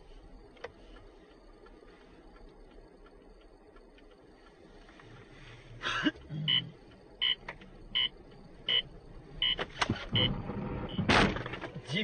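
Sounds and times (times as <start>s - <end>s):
car interior hum: 0.0s - 12.0s
short electronic beeps: 6.4s - 11.1s.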